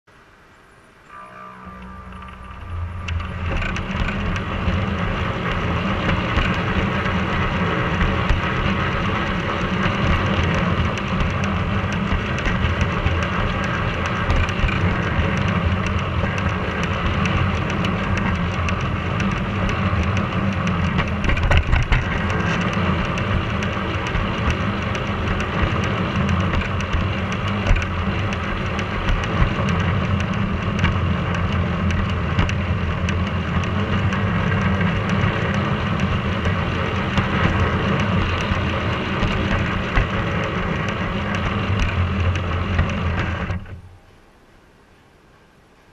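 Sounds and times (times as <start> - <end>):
wheels rattling on rails: 0.1 - 45.9.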